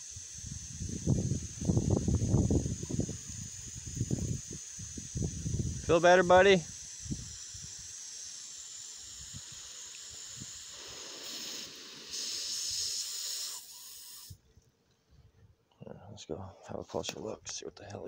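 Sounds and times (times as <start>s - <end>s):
garden hose spraying water: 0.0s - 14.4s.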